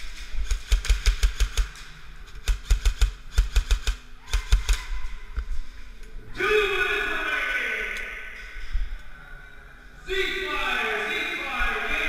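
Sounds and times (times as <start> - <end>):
airsoft rifle firing rapid clicks: 0.4 - 4.9.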